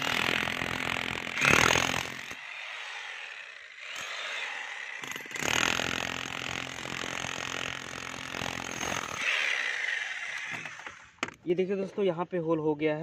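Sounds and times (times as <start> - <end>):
demolition hammer chiselling concrete: 0.0 - 9.9.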